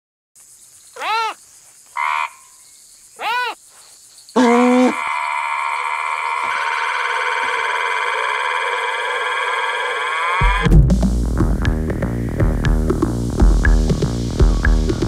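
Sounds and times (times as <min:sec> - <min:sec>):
insect-like chirring: 0:00.4 - 0:10.7
rising-then-falling calls: 0:00.9 - 0:10.7.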